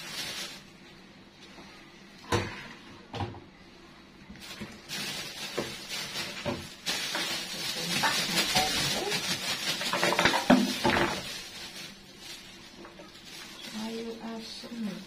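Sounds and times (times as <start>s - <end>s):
plastic bag rustling: 0.0s - 1.0s, 4.3s - 15.0s.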